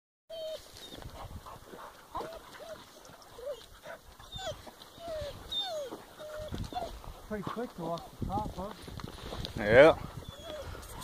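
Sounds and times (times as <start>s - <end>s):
dog whining and yelping: 0.3s - 1.0s, 2.2s - 7.0s, 10.2s - 11.0s
footsteps on gravel: 0.6s - 9.7s.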